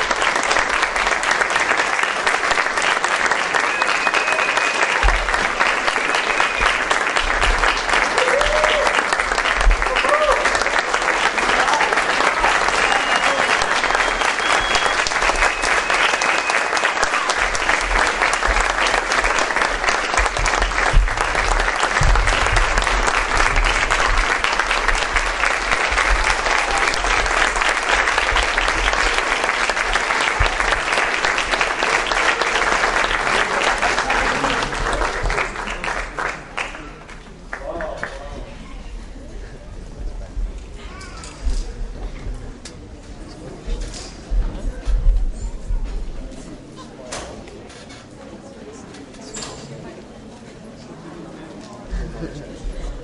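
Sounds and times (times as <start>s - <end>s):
audience applauding: 0.0s - 38.4s.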